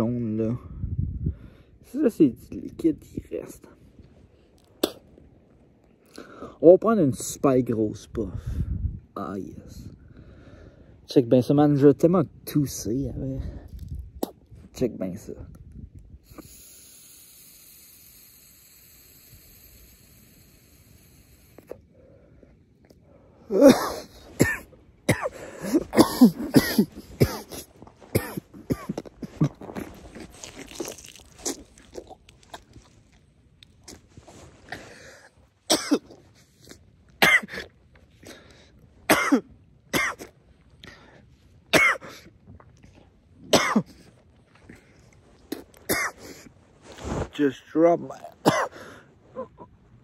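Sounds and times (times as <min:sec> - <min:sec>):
man coughing: 0:23.5 - 0:29.9, 0:35.7 - 0:36.1, 0:37.2 - 0:37.7, 0:39.1 - 0:40.3, 0:41.7 - 0:42.2, 0:43.5 - 0:44.0, 0:45.9 - 0:46.5, 0:48.4 - 0:48.8.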